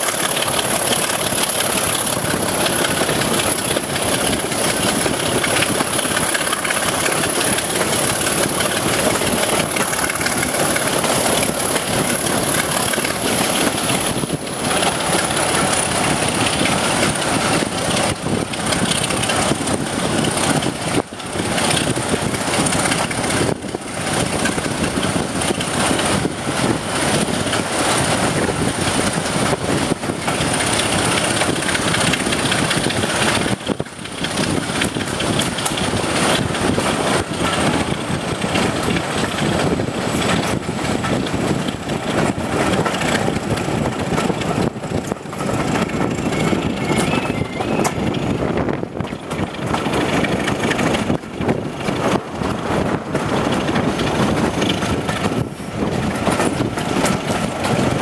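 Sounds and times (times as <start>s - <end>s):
diesel locomotive engine working: 0.0s - 58.0s
wheels running on rails: 0.0s - 58.0s
wind rushing past window: 0.3s - 58.0s
thin high whistle: 46.4s - 47.9s.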